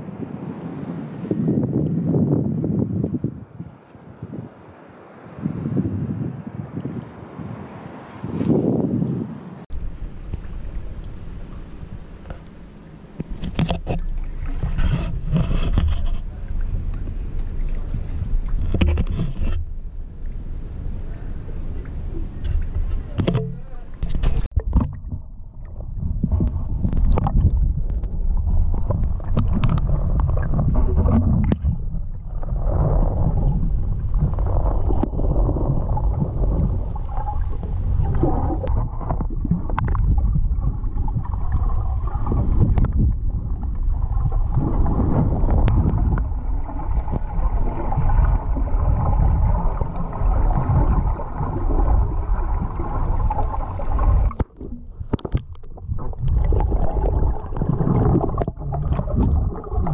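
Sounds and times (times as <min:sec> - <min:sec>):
muffled underwater rumbling and gurgling: 0:09.7 - 0:59.9.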